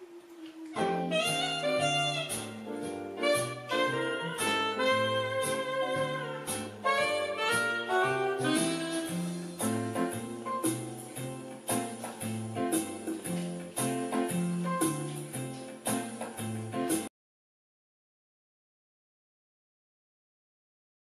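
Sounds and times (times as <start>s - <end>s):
instrumental music with bass line: 0.8s - 17.1s.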